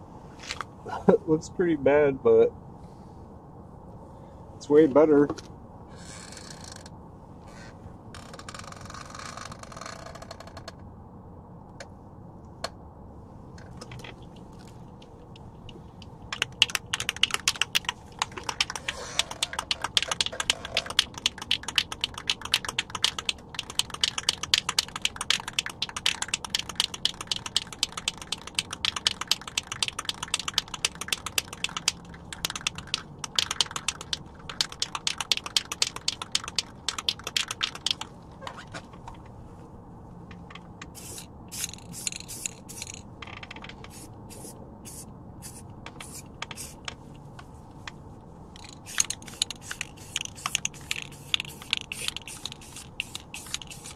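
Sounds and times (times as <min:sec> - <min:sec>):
spray can rattling: 0:15.6 - 0:38.1, 0:40.9 - 0:43.0, 0:43.7 - 0:47.0, 0:48.6 - 0:53.9.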